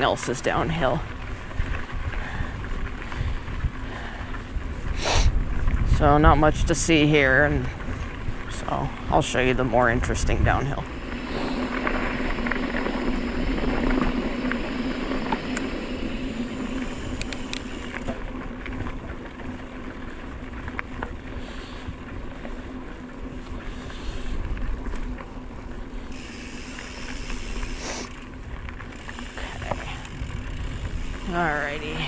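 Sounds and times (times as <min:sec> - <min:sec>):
wind buffeting the microphone: 0:00.0 - 0:19.4, 0:27.1 - 0:32.0
bike clicks and rattles: 0:00.0 - 0:32.0
bike tyres rolling over dirt: 0:00.0 - 0:32.0.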